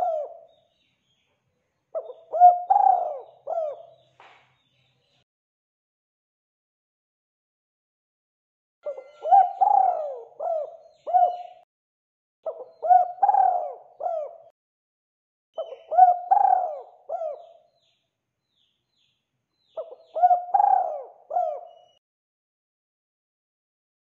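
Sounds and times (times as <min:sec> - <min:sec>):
dove cooing: 0:00.0 - 0:00.5, 0:02.0 - 0:04.0, 0:08.8 - 0:11.6, 0:12.4 - 0:14.5, 0:15.6 - 0:17.6, 0:19.8 - 0:22.0.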